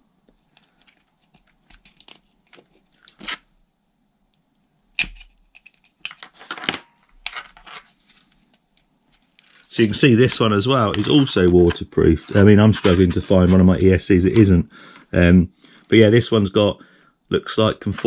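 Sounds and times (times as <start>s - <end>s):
rustling and crinkling: 0.2s - 3.6s, 5.4s - 13.7s
plastic clicks and scrapes: 0.3s - 3.4s.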